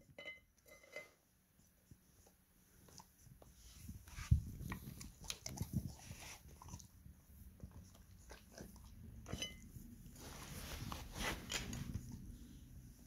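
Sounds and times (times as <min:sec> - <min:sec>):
dog chewing crunchy food: 0:04.3 - 0:07.0.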